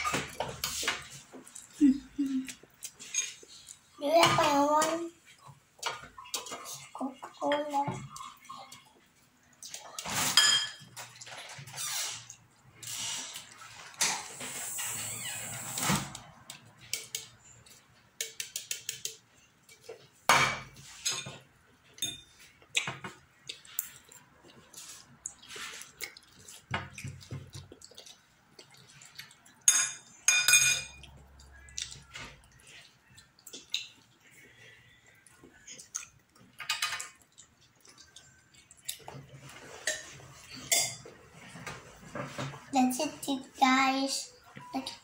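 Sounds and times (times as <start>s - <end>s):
child slurping and chewing: 0.0s - 30.3s, 30.9s - 41.9s
tableware clinking on glass table: 10.2s - 10.9s, 29.7s - 31.0s.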